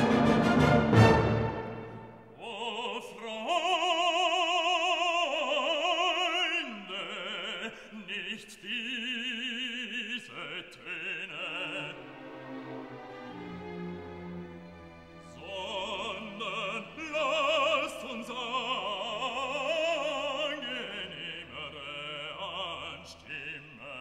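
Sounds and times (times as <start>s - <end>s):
operatic voice singing: 2.3s - 12.5s, 15.2s - 24.0s.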